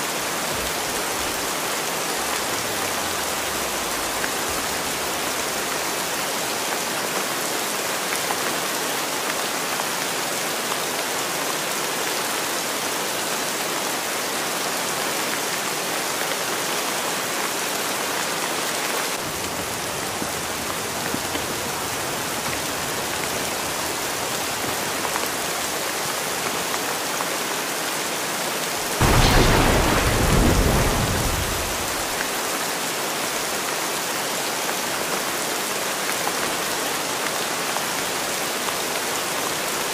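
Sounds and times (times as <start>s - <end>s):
steady rain falling: 0.0s - 39.9s
thunder rumbling: 29.0s - 32.2s.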